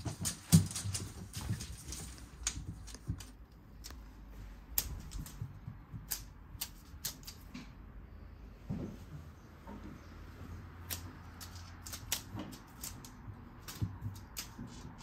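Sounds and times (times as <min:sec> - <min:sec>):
claws clicking on wooden floor: 0:00.0 - 0:04.0, 0:04.7 - 0:07.6, 0:10.8 - 0:15.0.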